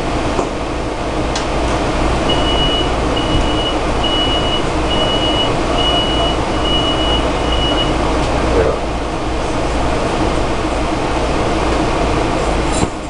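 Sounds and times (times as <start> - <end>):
train humming: 0.0 - 13.0
electronic warning beeps: 2.3 - 8.0.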